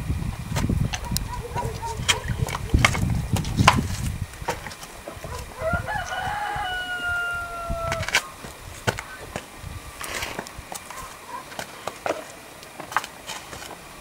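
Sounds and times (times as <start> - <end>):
low rumbling: 0.0 - 10.7
rooster crowing: 5.2 - 8.4.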